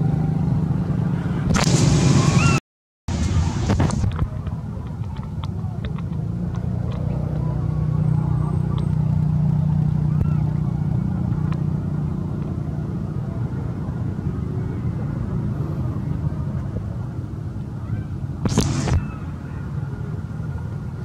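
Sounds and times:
vehicle engine rumbling: 0:00.0 - 0:21.0
brief loud noise: 0:01.5 - 0:04.0.

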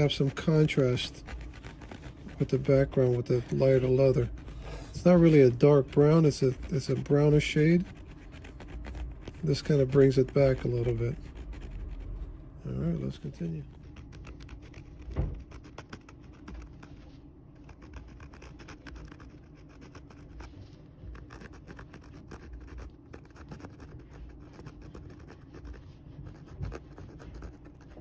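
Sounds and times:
scratching and rubbing on leather: 0:00.0 - 0:28.0
dull knock: 0:15.0 - 0:15.5.

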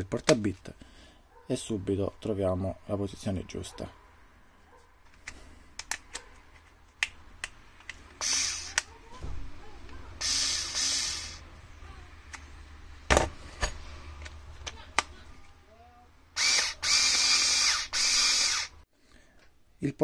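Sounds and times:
hard plastic clicks: 0:05.1 - 0:09.0.

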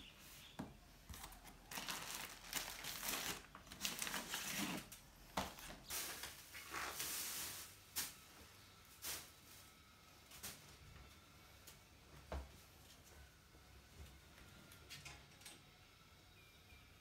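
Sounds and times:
plastic bags crinkling: 0:01.1 - 0:07.8.

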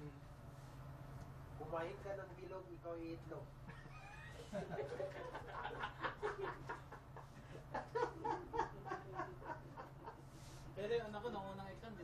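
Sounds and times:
low steady hum: 0:00.0 - 0:12.0
man laughing: 0:03.7 - 0:10.3.

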